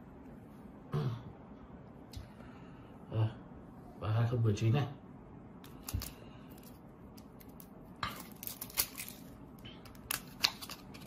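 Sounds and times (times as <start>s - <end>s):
playing cards crackling and tapping: 5.7s - 11.0s.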